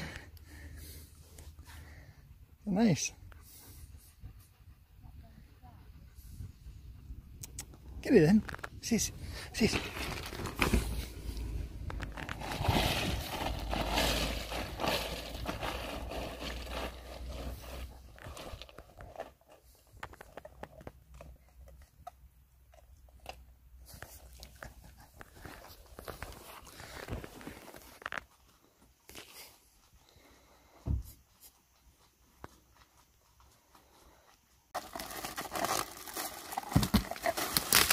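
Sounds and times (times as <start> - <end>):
dog crunching ice cubes: 11.9 - 19.5, 34.8 - 37.9.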